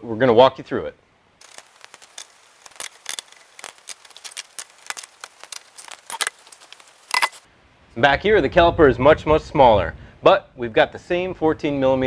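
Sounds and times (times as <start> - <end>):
metallic clicks and clinks: 1.4 - 7.5.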